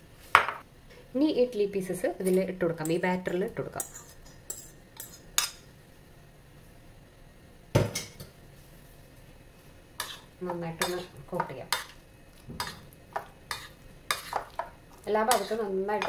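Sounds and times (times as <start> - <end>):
spoon stirring in ceramic bowl: 3.8 - 5.6, 10.0 - 16.0.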